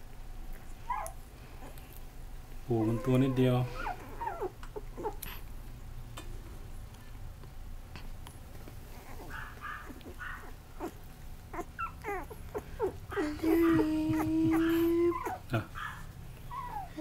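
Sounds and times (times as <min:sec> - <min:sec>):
puppy whimpering: 0:00.8 - 0:01.8, 0:02.7 - 0:05.4, 0:08.9 - 0:17.0.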